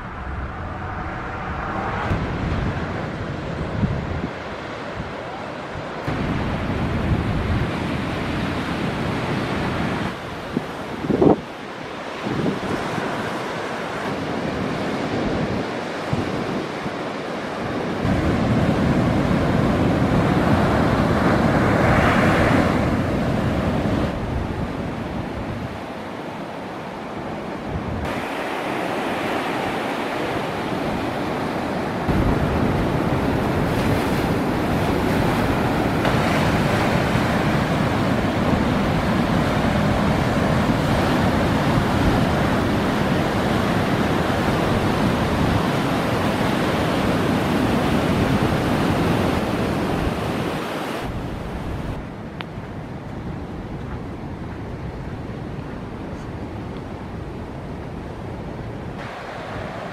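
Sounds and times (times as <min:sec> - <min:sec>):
waves breaking over rocks: 0:28.0 - 0:52.0.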